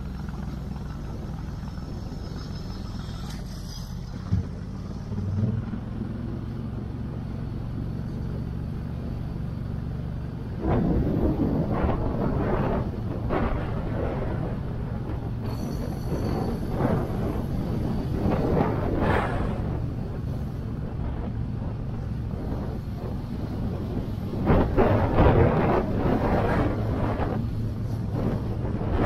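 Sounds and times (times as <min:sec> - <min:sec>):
motorcycle engine running: 0:00.0 - 0:29.0
rough rushing noise: 0:10.5 - 0:29.0.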